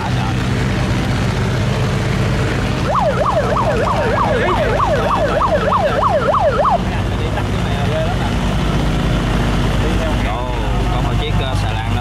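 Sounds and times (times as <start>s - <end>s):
boat engine running: 0.0s - 12.0s
yelping siren: 2.8s - 6.9s.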